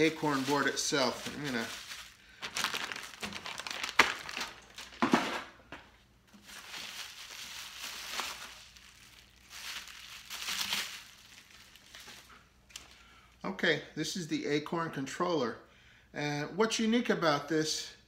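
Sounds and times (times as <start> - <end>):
bubble wrap crinkling: 0.0 - 5.5, 6.3 - 12.9.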